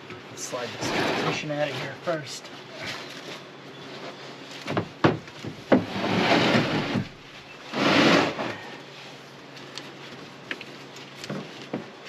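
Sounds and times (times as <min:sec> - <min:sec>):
heavy object scraping truck bed: 0:00.4 - 0:02.2, 0:05.7 - 0:08.8.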